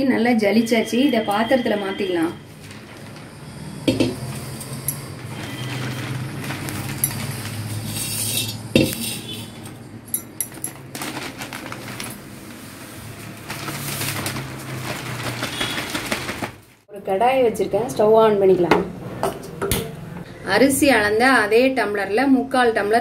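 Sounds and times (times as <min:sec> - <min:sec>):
newspaper crackling and rustling: 0:02.5 - 0:03.4, 0:04.2 - 0:07.9, 0:10.7 - 0:16.8.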